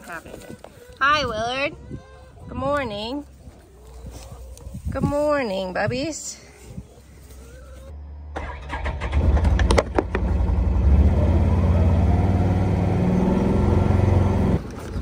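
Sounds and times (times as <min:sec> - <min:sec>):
vehicle engine hum: 0:07.6 - 0:15.0.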